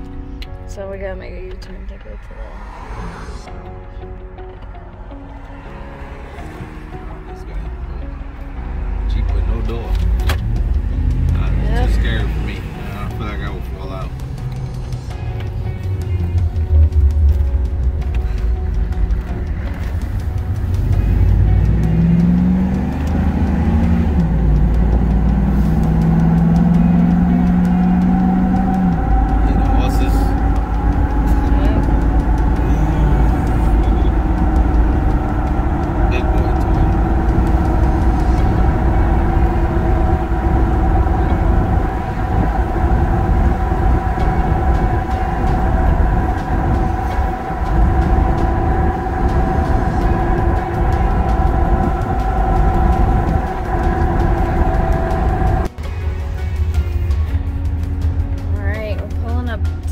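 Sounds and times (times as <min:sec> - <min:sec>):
suv engine and road rumble: 0:00.0 - 0:59.9
multi-tone hum: 0:25.6 - 0:55.7.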